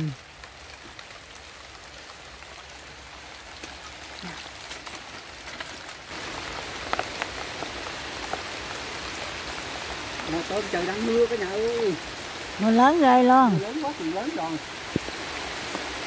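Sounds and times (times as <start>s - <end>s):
heavy rain falling: 0.0s - 16.0s.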